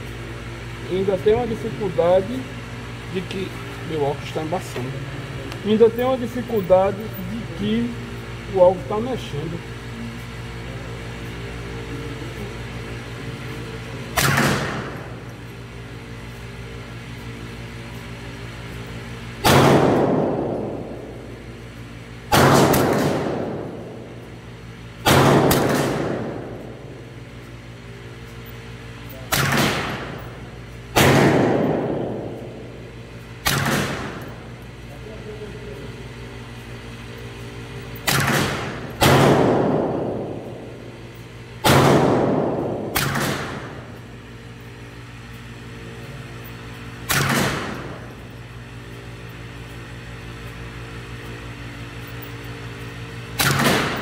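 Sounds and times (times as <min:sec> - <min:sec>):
steady low hum: 0:00.0 - 0:54.0
rifle shots echoing indoors: 0:14.2 - 0:15.2, 0:19.4 - 0:21.4, 0:22.3 - 0:24.1, 0:25.0 - 0:26.9, 0:29.3 - 0:30.3, 0:30.9 - 0:34.4, 0:38.0 - 0:41.0, 0:41.6 - 0:44.0, 0:47.0 - 0:48.1, 0:53.3 - 0:54.0.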